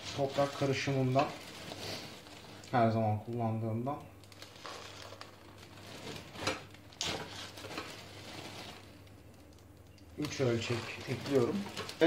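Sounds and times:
granular soil poured into plastic tray: 10.2s - 12.0s.

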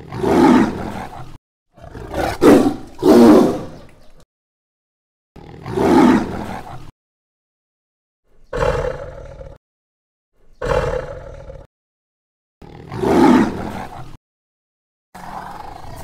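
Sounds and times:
tiger roaring: 0.0s - 3.9s, 5.4s - 6.9s, 8.5s - 9.6s, 10.6s - 11.7s, 12.6s - 14.2s, 15.2s - 16.0s.

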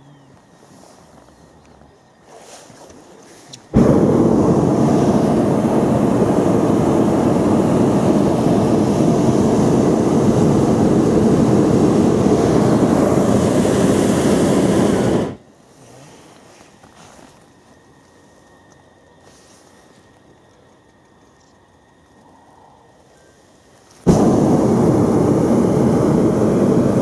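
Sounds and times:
propane burner roaring: 3.7s - 15.4s, 24.0s - 27.0s.

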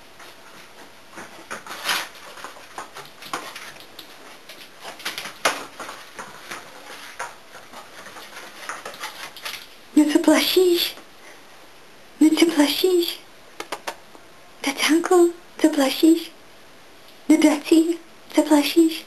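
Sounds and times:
pet's paws tapping on hard floor: 0.2s - 9.8s.

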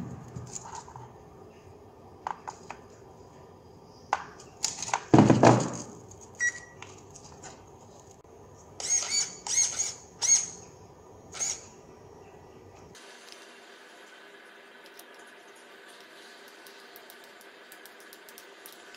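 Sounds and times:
servo whirring: 8.8s - 10.6s, 11.3s - 11.7s.

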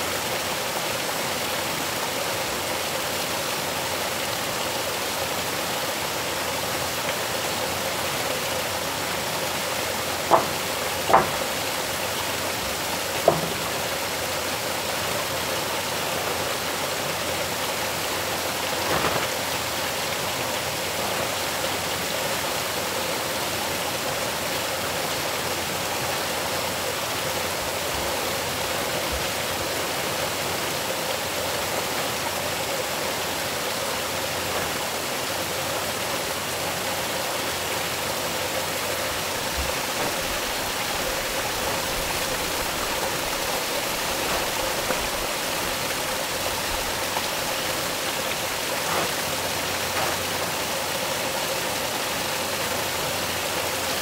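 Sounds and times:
steady rushing hiss: 0.0s - 54.0s
faint short rustle: 18.8s - 19.5s.

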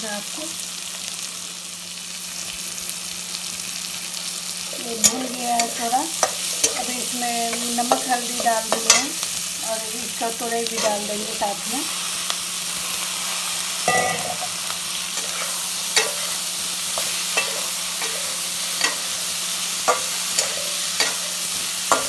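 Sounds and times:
food sizzling in a pan: 0.0s - 22.0s
spatula scraping a metal pan: 15.2s - 22.0s.

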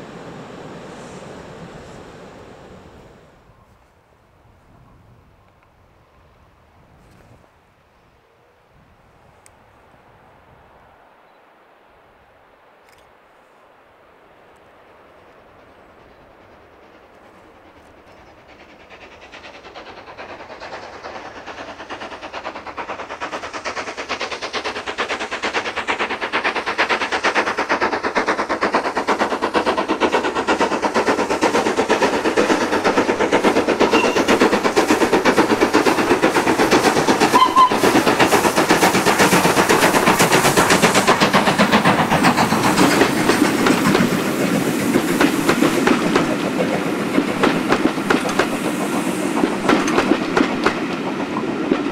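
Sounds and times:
steam locomotive exhaust chuffs: 15.4s - 51.9s.

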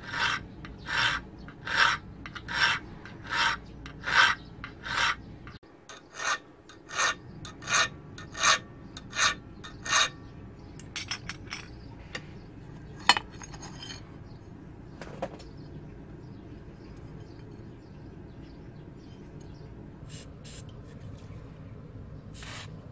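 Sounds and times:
file rasping on steel: 0.0s - 5.3s, 5.9s - 10.2s.

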